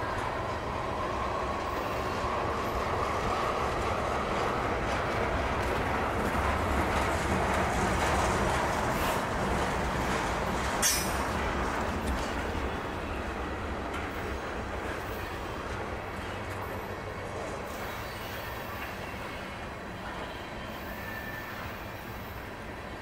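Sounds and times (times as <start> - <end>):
train wheels rumbling: 0.0 - 23.0
faint wheel squeal: 17.7 - 22.5.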